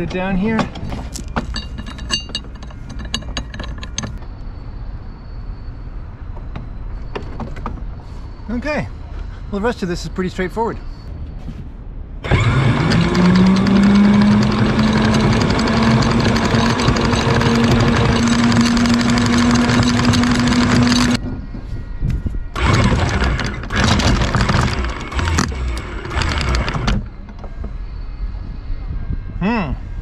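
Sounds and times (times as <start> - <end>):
chain rattling: 0.7 - 4.2, 12.8 - 21.2
windlass motor whining: 12.2 - 30.0.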